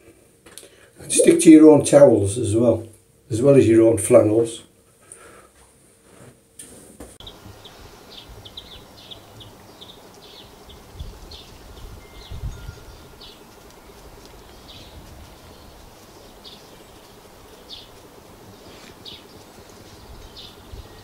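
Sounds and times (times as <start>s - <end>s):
birds chirping: 7.2s - 21.0s.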